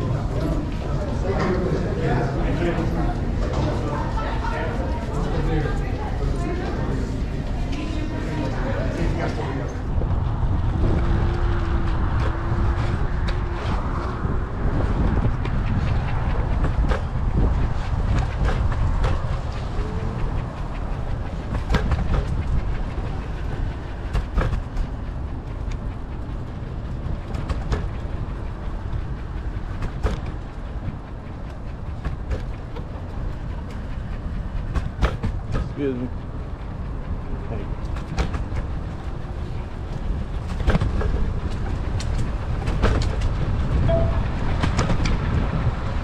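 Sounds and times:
wheels rumbling on concrete: 0.0 - 46.0
wind buffeting microphone: 0.0 - 46.0
scooter clacking over pavement joints: 10.2 - 45.9.

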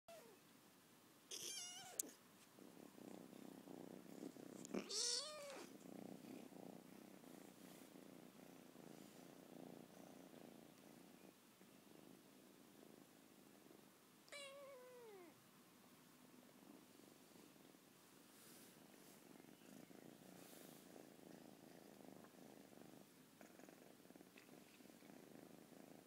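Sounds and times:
kitten meowing: 1.3 - 2.1, 4.8 - 5.7, 14.3 - 15.3
kitten purring: 1.3 - 15.4, 16.2 - 26.0.

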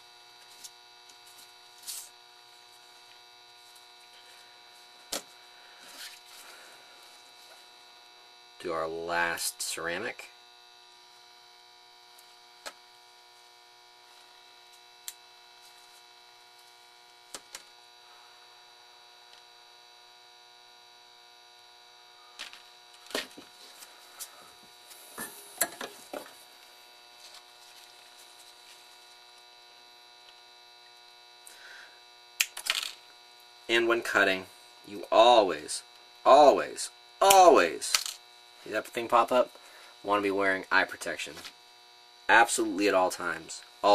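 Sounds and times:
low electrical mains hum: 0.0 - 43.9.

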